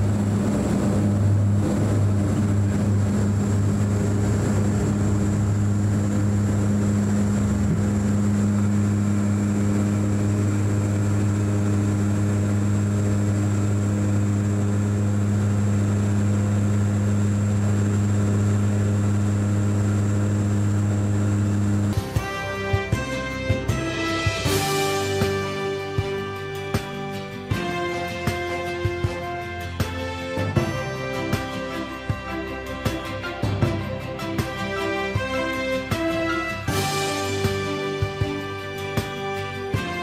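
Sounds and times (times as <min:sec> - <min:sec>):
high whine: 0:00.0 - 0:40.0
propellers droning: 0:00.0 - 0:40.0.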